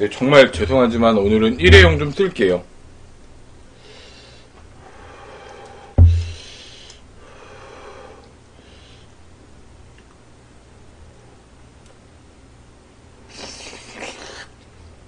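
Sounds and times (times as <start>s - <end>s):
sharp knock: 1.6s - 2.2s, 6.0s - 6.4s
breathing through the nose: 3.8s - 9.2s.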